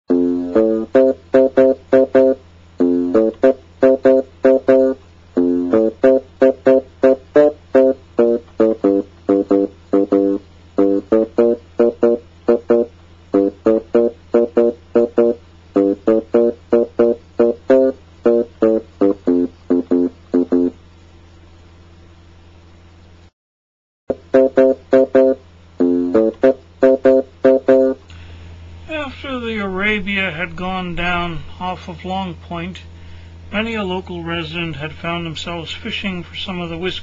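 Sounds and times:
plucked guitar riff: 0:00.1 - 0:20.8, 0:24.1 - 0:32.7
steady low hum: 0:00.1 - 0:23.3, 0:24.1 - 0:37.0.

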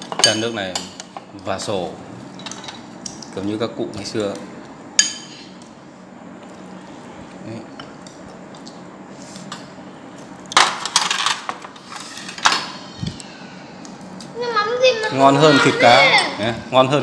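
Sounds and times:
bowls and utensils clattering: 0:02.3 - 0:03.3, 0:10.5 - 0:12.9.

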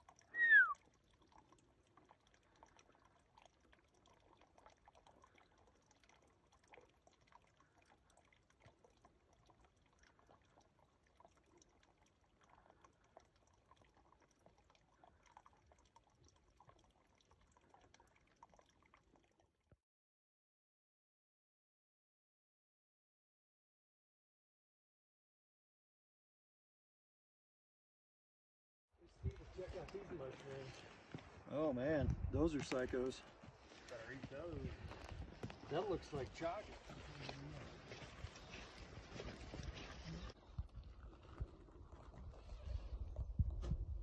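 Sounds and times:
whistle-like call sliding down: 0:00.4 - 0:00.8
faint rustles and ticks: 0:29.1 - 0:43.3.

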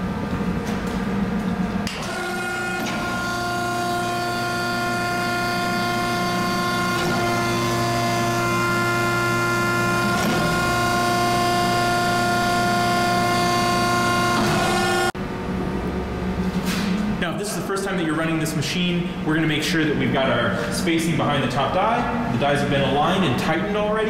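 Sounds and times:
hydraulic pump whining: 0:01.8 - 0:15.2.

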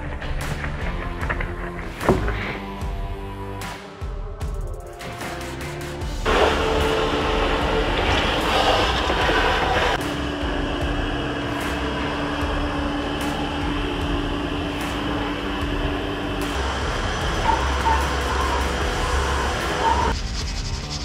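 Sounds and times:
wet-dry vacuum sucking foam: 0:06.3 - 0:20.2.

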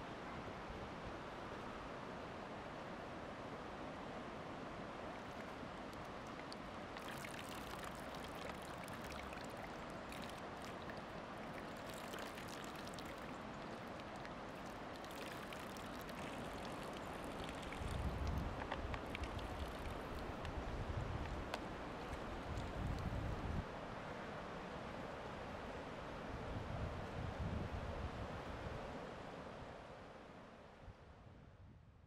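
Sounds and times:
river water lapping at a bank: 0:04.7 - 0:24.0
wind rumble on microphone: 0:17.0 - 0:23.8, 0:26.3 - 0:29.0, 0:30.8 - 0:32.0.

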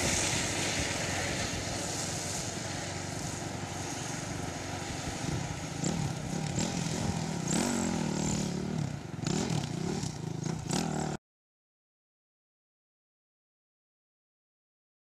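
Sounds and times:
van engine revving: 0:04.6 - 0:11.2.

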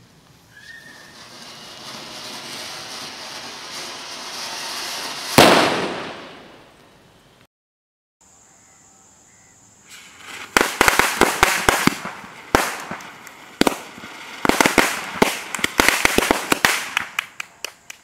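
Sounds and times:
firecrackers banging: 0:00.6 - 0:06.8, 0:09.9 - 0:18.0
fuse hiss: 0:08.4 - 0:15.5.

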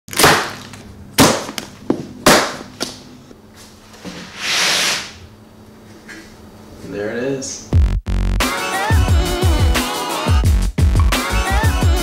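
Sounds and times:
cardboard scraping rustle: 0:04.0 - 0:05.2.

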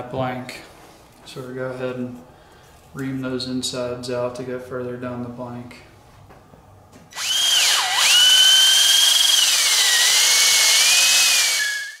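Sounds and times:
cordless drill motor whine: 0:07.1 - 0:12.0.

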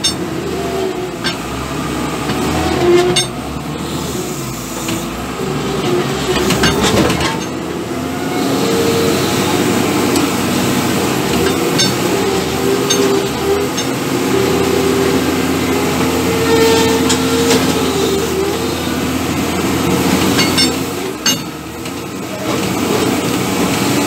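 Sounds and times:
metallic clanks and rattles: 0:00.0 - 0:00.3, 0:01.2 - 0:01.5, 0:02.3 - 0:03.4, 0:06.4 - 0:07.7, 0:11.2 - 0:14.0, 0:20.2 - 0:22.7
loader diesel engine running: 0:00.0 - 0:24.0.

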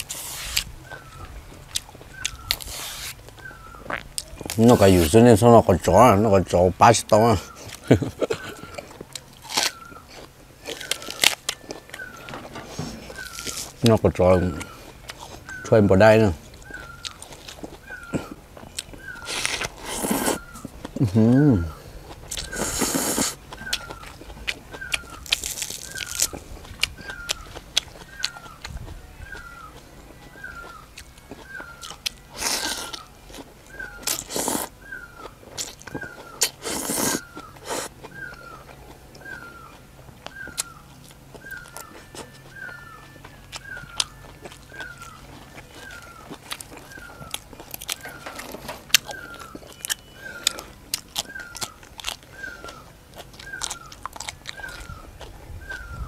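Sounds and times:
person chewing: 0:00.0 - 0:05.2, 0:07.1 - 0:15.7, 0:16.4 - 0:56.0
person slurping noodles: 0:19.3 - 0:20.4, 0:22.5 - 0:23.4, 0:36.6 - 0:37.9
animal chirping call: 0:27.0 - 0:56.0.

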